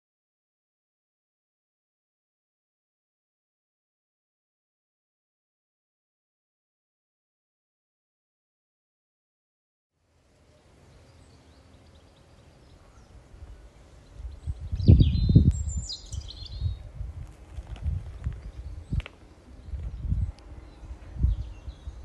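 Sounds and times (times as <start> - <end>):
small bird chirping: 10.5 - 16.9
wind buffeting on microphone: 13.4 - 22.0.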